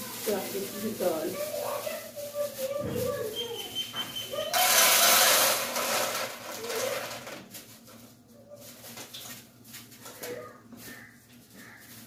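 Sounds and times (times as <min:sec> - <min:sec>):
lentils poured into plastic container: 0:04.4 - 0:07.8.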